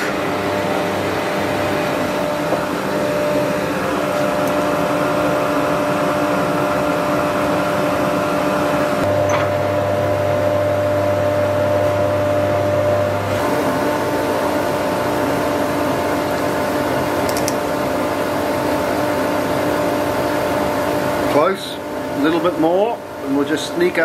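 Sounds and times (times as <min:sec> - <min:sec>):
deeper hum: 0:00.0 - 0:16.9
wood lathe motor hum: 0:00.0 - 0:21.5.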